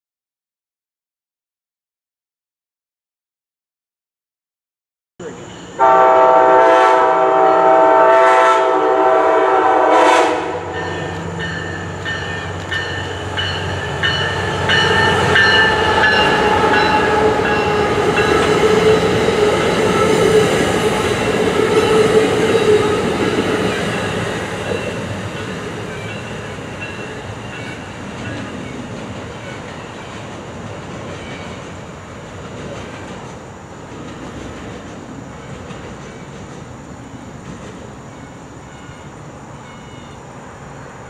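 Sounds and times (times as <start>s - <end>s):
train rumble and whine: 5.2s - 41.0s
locomotive horn chord: 5.8s - 11.1s
train wheels clicking over rail joints: 10.8s - 39.0s.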